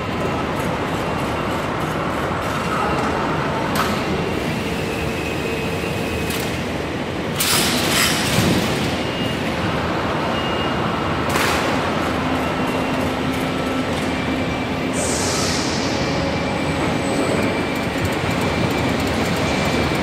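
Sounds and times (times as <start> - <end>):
machine mechanical hum: 0.0 - 20.0
hissing bursts: 14.9 - 17.0.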